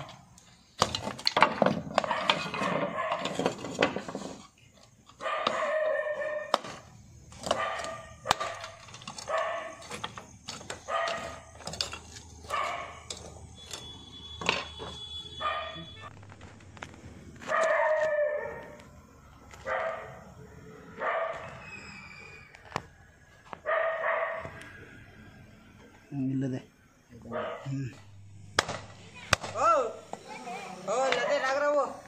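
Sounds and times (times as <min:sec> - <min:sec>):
roof tiles clattering: 0:00.8 - 0:05.8, 0:06.5 - 0:15.0
dog barking: 0:02.0 - 0:03.4, 0:05.2 - 0:06.6, 0:07.5 - 0:09.8, 0:10.8 - 0:11.4, 0:12.5 - 0:13.1, 0:15.4 - 0:15.9, 0:17.5 - 0:18.8, 0:19.6 - 0:20.2, 0:21.0 - 0:21.5, 0:23.6 - 0:24.5, 0:27.3 - 0:27.7.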